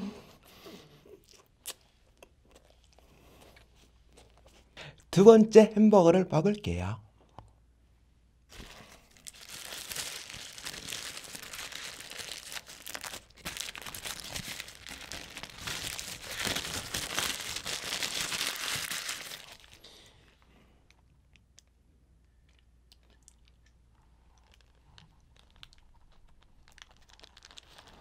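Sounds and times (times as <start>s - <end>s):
paper wrapper crinkling and tearing: 8.5s - 19.8s, 24.4s - 28.0s.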